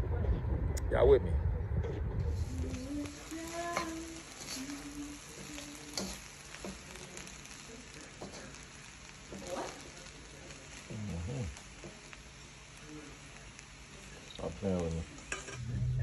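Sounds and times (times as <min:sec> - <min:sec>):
rice sizzling in a wok: 0:02.3 - 0:16.0
spatula scraping a pan: 0:02.4 - 0:10.8, 0:15.2 - 0:15.6.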